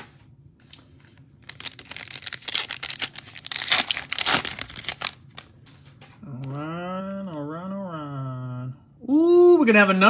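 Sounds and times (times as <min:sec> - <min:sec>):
wrapper crinkling and tearing: 0:01.4 - 0:05.8.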